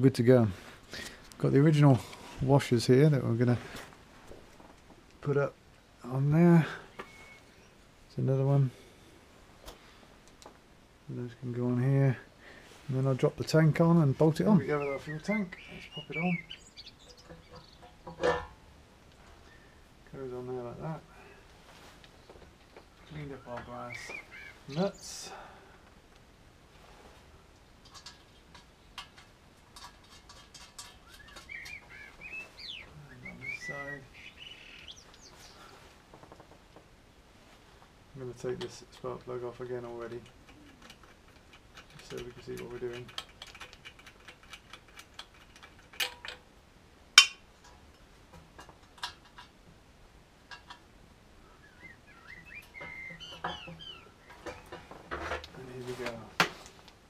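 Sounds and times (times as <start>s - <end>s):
bird chirping: 6.6s - 7.9s, 13.5s - 18.2s, 19.3s - 20.9s, 22.1s - 25.4s, 30.1s - 35.8s, 51.4s - 54.9s
metallic clicks of brass nuts: 40.2s - 46.5s.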